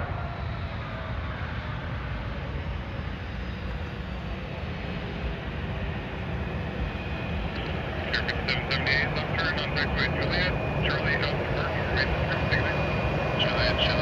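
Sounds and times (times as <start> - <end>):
jet engines low rumble: 0.0 - 14.0.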